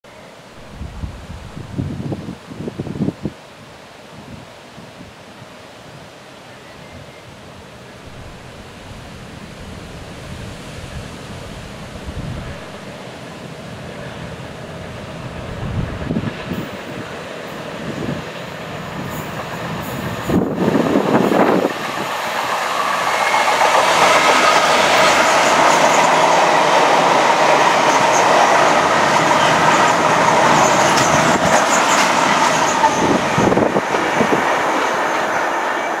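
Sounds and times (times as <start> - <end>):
diesel locomotive engine passing: 0.3 - 2.2, 7.7 - 36.0
train wheels clacking on rails: 16.1 - 36.0.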